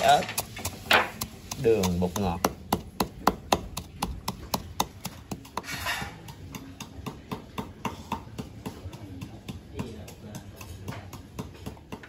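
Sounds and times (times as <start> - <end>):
pestle pounding in a mortar: 0.0 - 12.0.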